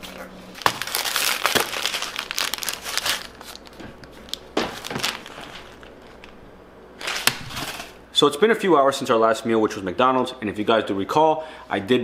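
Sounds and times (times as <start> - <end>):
plastic wrapper crinkling and tearing: 0.1 - 6.4, 7.0 - 8.0.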